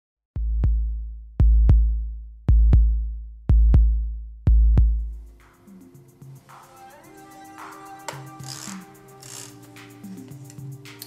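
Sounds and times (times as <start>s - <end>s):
deep drum machine bass drum hits: 0.4s - 5.5s.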